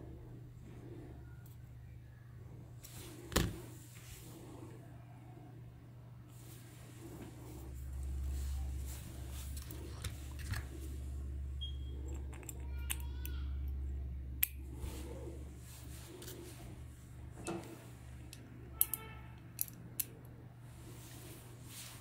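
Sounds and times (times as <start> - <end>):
steady low hum: 0.0 - 22.0
plastic toy parts clicking: 18.8 - 20.1.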